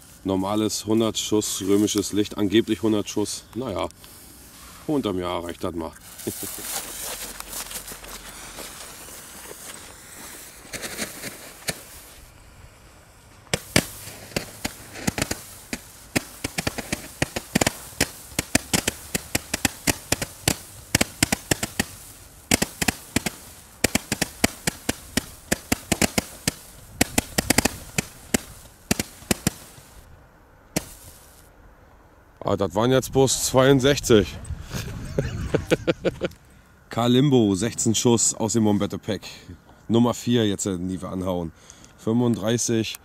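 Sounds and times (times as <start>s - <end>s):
firework battery popping: 6.0s - 30.1s, 30.7s - 31.5s.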